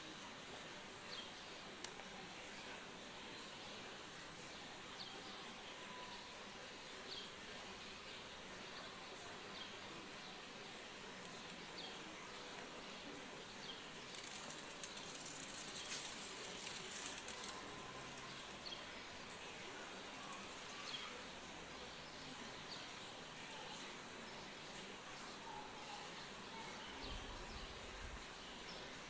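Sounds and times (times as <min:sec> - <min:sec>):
steady outdoor hiss: 0:00.0 - 0:29.0
crackling rustle: 0:13.7 - 0:19.4.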